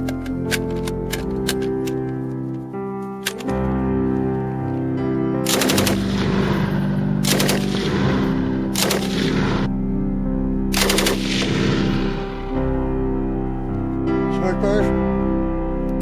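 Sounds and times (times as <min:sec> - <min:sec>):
background music: 0:00.0 - 0:16.0
machine gun bursts: 0:05.5 - 0:06.2, 0:07.2 - 0:09.7.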